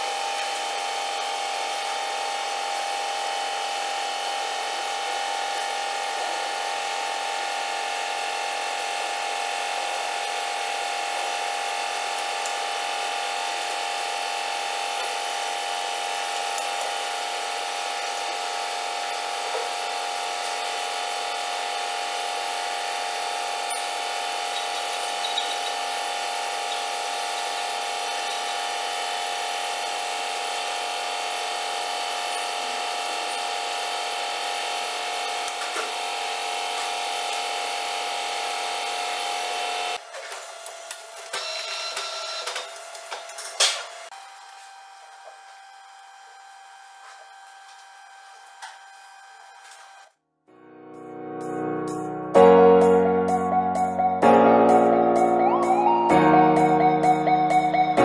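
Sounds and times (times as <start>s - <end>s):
steady machine hum: 0.0s - 40.0s.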